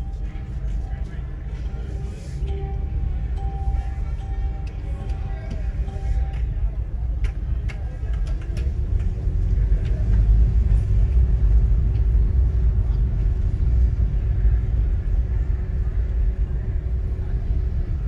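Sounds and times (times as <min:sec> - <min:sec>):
faint steady hum: 0:00.0 - 0:08.5
car driving rumble: 0:00.0 - 0:18.0.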